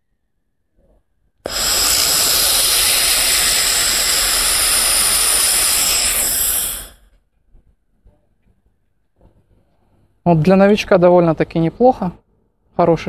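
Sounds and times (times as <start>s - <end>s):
laser welding hiss: 1.5s - 7.1s.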